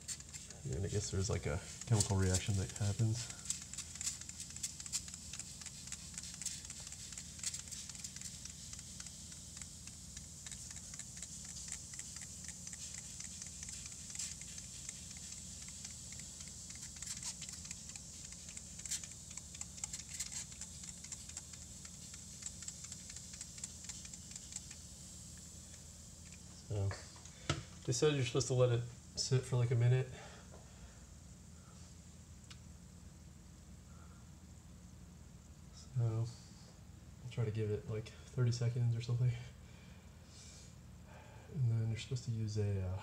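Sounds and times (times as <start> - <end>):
spray bottle squirts: 0.0 - 0.6, 1.7 - 24.9
baking soda fizzing: 0.0 - 26.6.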